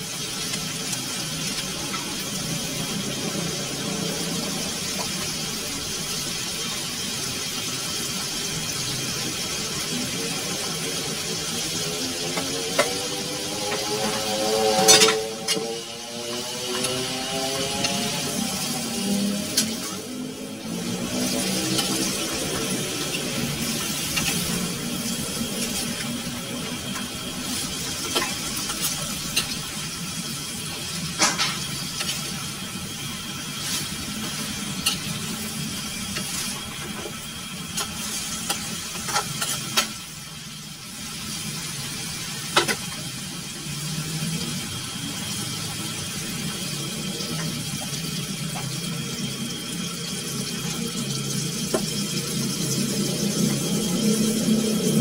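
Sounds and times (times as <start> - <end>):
food frying in a wok: 0.0 - 55.0
metal spatula scraping a pan: 14.0 - 15.7.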